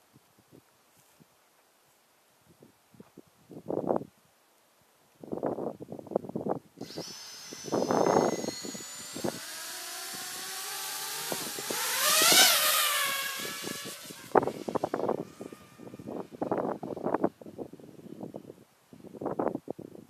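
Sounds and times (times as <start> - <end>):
wind buffeting microphone: 5.2 - 20.0
drone motors whining: 6.8 - 17.2.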